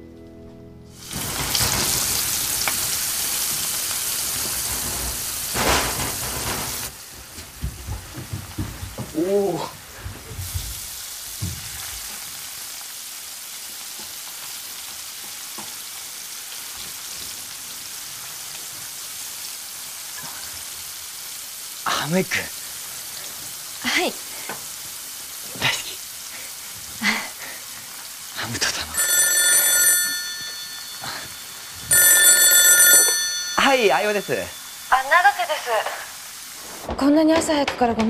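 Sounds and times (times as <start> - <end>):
steady hiss: 0.9 - 29.0, 30.6 - 31.9, 33.5 - 36.9
knocks: 5.6 - 9.2.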